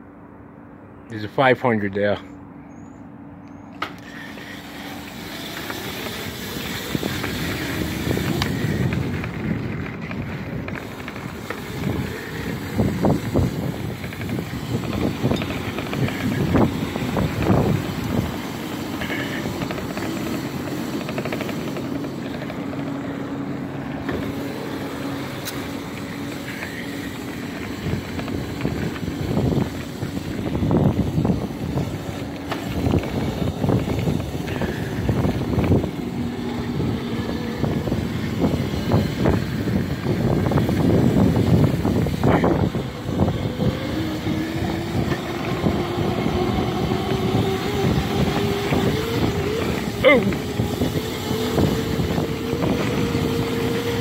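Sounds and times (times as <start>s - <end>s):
chain and tyres on gravel: 0.1s - 54.0s
electric motor whine: 3.7s - 54.0s
rattles and knocks from bumps: 4.9s - 46.4s.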